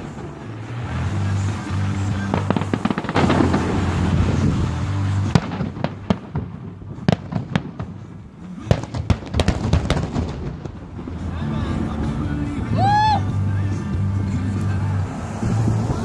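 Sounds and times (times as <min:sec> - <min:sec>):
fireworks bursting with bangs: 0:00.0 - 0:12.3.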